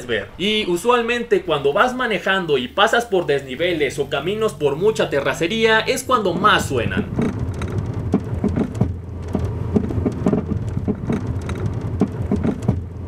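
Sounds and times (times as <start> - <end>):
low road rumble: 0.0 - 13.0
suspension knocking clunks: 6.3 - 13.0.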